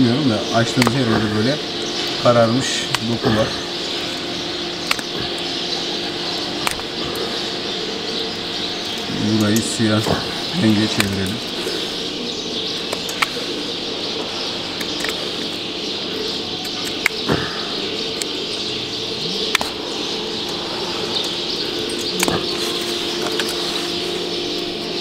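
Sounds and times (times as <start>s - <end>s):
small birds chirping: 0.0s - 25.0s
steady low hum: 0.0s - 25.0s
sharp clicks: 0.7s - 1.1s, 2.8s - 3.4s, 4.8s - 5.6s, 6.3s - 7.3s, 12.8s - 13.4s, 14.8s - 15.6s.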